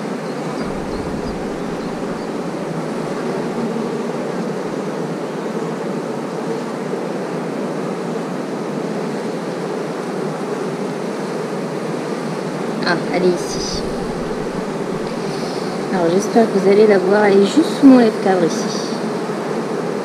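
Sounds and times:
honeybees buzzing: 0.6 - 5.6, 12.9 - 18.0.

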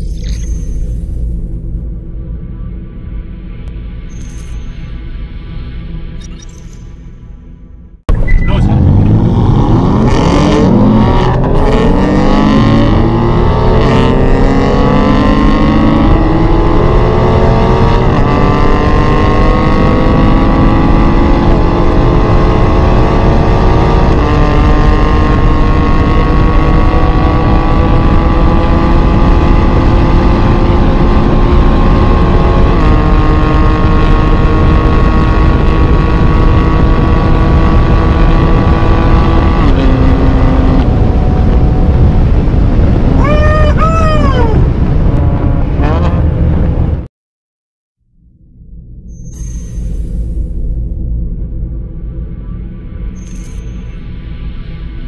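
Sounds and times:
car engine accelerating: 5.3 - 47.1.

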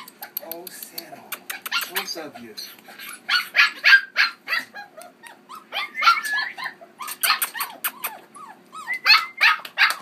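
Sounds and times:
puppy growling squeakily: 1.5 - 10.0
puppy yipping: 1.5 - 10.0.

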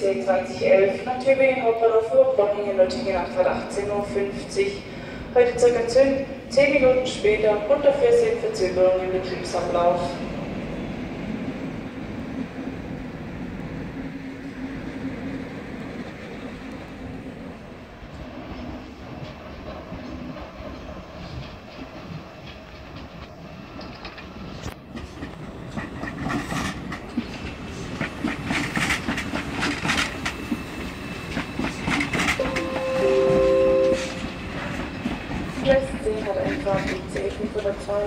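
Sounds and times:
high-speed train rumbling: 0.0 - 38.0
train wheels clattering over joints: 19.2 - 38.0.

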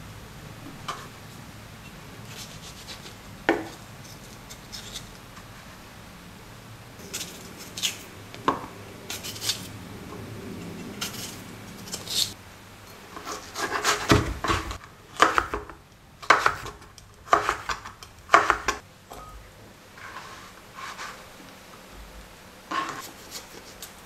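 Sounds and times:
knife slicing fruit: 13.2 - 18.8
knife chopping on plastic board: 13.5 - 18.8.

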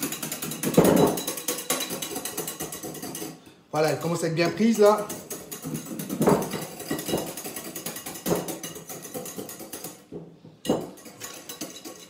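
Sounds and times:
whisk clattering against glass bowl: 0.0 - 12.0.

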